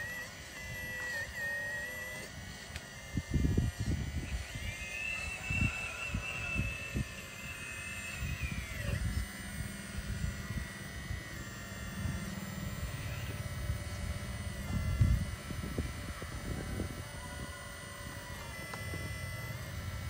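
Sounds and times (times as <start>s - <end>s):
model excavator motor whining: 0.0s - 20.0s.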